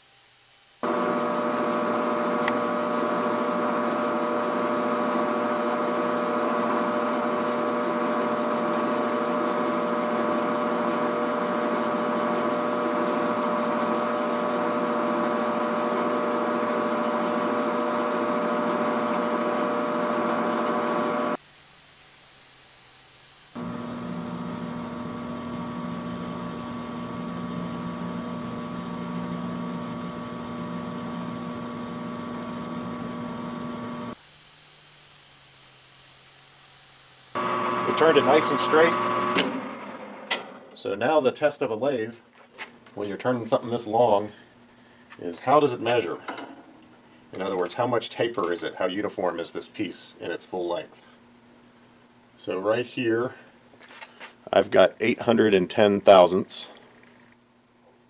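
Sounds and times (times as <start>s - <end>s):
metal lathe cutting steel: 21.4s - 23.6s, 34.1s - 39.4s.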